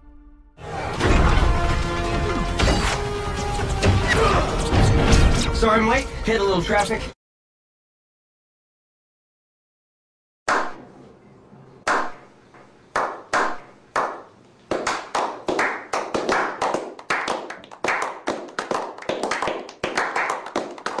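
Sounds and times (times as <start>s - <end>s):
men slow clapping: 12.9s - 21.0s.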